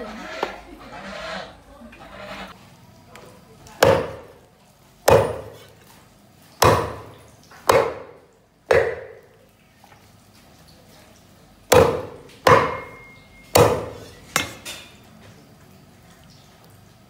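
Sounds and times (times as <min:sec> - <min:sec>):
cleaver chopping on wooden block: 0:03.8 - 0:04.3, 0:05.0 - 0:05.6, 0:06.6 - 0:09.2, 0:11.7 - 0:14.5.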